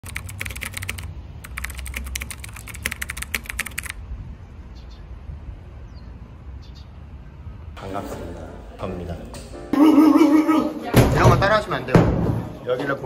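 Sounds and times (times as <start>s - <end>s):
computer keyboard typing: 0.0s - 4.0s.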